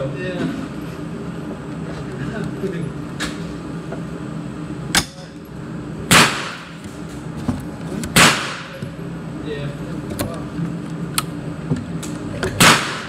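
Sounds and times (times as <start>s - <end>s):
rifle shots echoing indoors: 6.1s - 6.8s, 8.2s - 8.7s, 12.6s - 13.0s.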